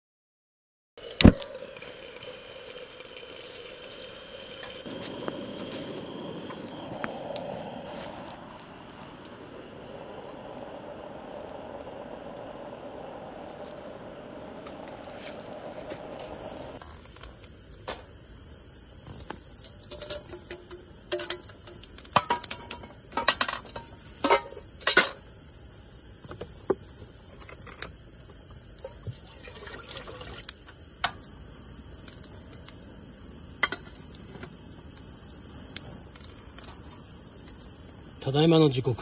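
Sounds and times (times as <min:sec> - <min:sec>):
campfire crackling: 0:01.0 - 0:17.8, 0:27.1 - 0:38.9
steady high hiss: 0:01.0 - 0:39.0.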